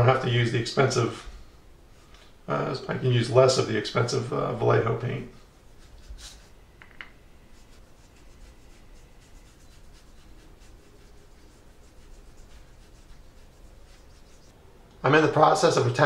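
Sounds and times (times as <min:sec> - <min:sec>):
paintbrush scratchy brushing: 0:05.4 - 0:06.7, 0:07.4 - 0:14.6.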